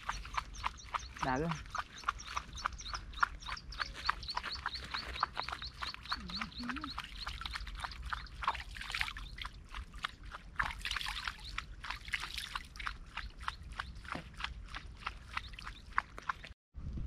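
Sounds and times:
hand splashing water: 5.8s - 16.4s.

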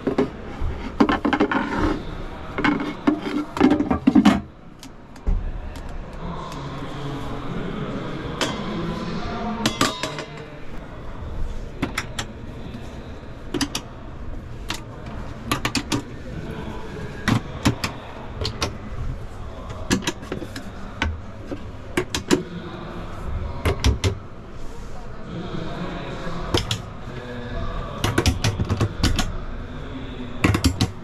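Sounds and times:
murmur of voices: 0.0s - 31.0s
sharp clicks and knocks: 13.5s - 13.9s, 26.6s - 26.8s, 28.0s - 29.3s, 30.4s - 31.0s.

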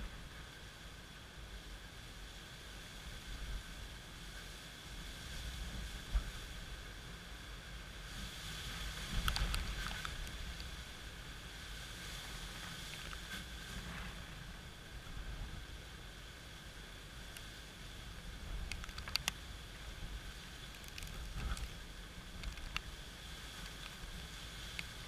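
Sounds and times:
rain hiss: 0.0s - 25.0s
wind rumbling on microphone: 0.0s - 25.0s
sharp ticks: 18.6s - 19.4s.

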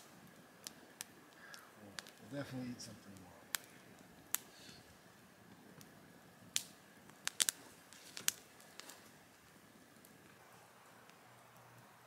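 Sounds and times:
campfire crackling: 0.0s - 12.0s
sharp fire pops: 0.0s - 12.0s.

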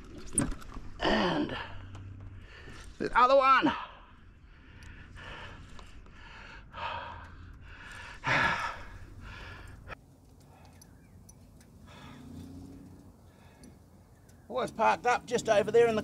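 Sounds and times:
man breathing hard and sighing: 1.0s - 3.0s, 3.8s - 11.0s, 11.8s - 12.4s, 13.3s - 13.8s.

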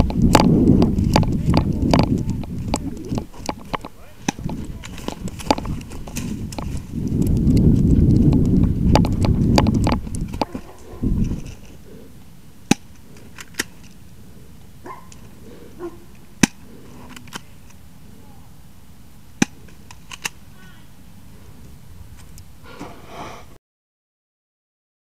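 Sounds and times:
wind buffeting microphone: 0.0s - 12.2s
rustling undergrowth: 0.0s - 23.4s.

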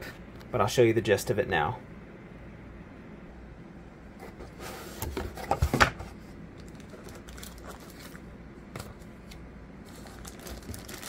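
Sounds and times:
paper and plastic rustling: 4.3s - 11.0s.

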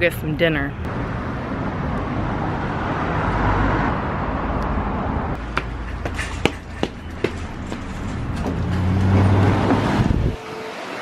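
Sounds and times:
car passing: 0.9s - 11.0s
footsteps on concrete: 5.4s - 8.6s.

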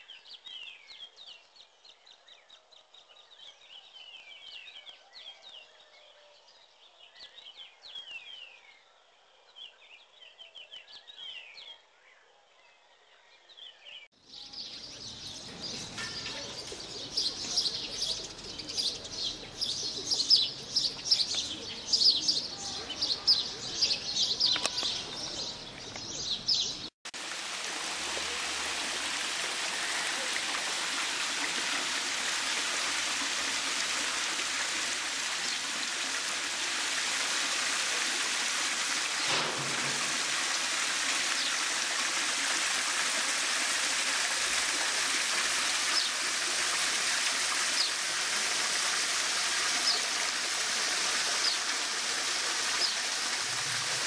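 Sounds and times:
birds chirping: 14.1s - 26.9s, 29.6s - 42.1s, 44.2s - 54.0s
waterfall splashing into pool: 27.1s - 54.0s.

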